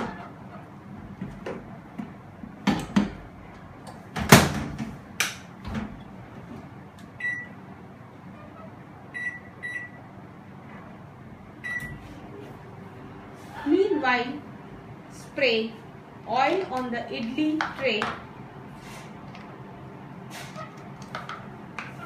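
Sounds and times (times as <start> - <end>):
microwave keypad beeps: 7.2 - 7.6, 9.2 - 10.0, 11.6 - 12.0.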